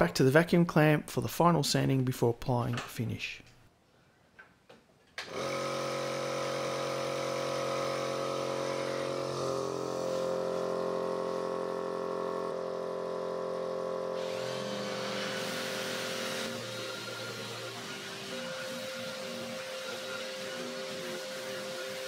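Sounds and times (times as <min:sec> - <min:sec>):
electric vacuum pump running: 0:05.2 - 0:22.0.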